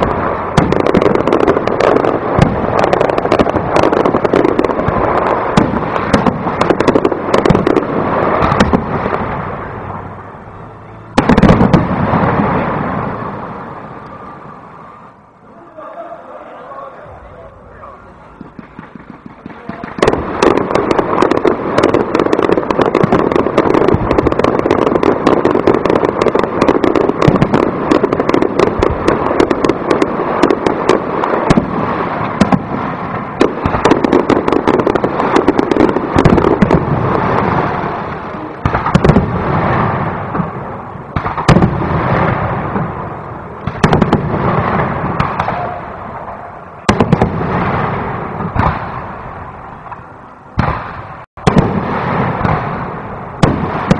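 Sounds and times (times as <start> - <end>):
rapid firework bangs and crackling: 0.0 - 10.4, 11.1 - 15.1, 18.2 - 53.9
firework shell bursts: 18.2 - 32.7.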